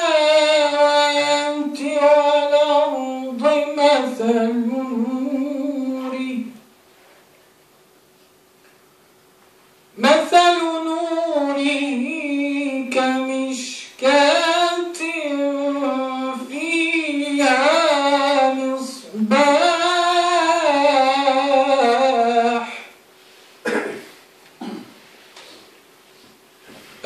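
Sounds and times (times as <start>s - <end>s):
man chanting: 0.0s - 6.5s, 10.0s - 22.8s.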